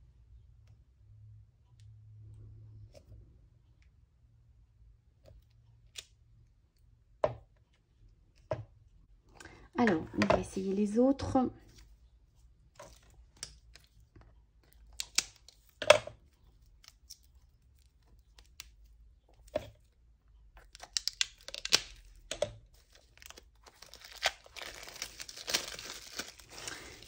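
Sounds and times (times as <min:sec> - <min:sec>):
plastic wrap crinkling: 0:20.6 - 0:27.0.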